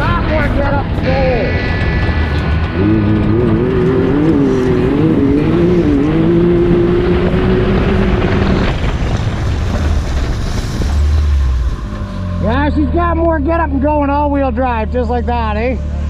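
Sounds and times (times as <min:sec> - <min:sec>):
wind noise on microphone: 0:00.0 - 0:12.1
engine revving: 0:00.0 - 0:16.0.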